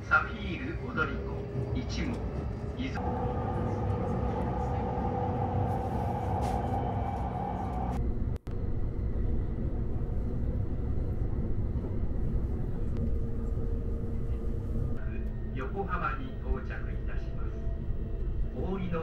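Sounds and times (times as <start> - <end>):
train wheels rumbling: 0.0 - 8.0.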